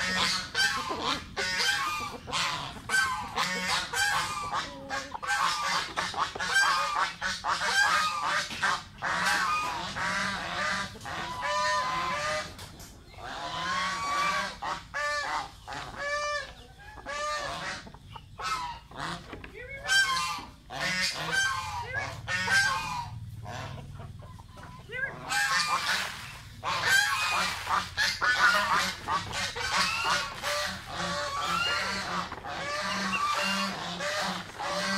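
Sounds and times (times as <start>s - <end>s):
ducks calling: 0.0s - 34.9s
geese honking: 0.0s - 34.9s.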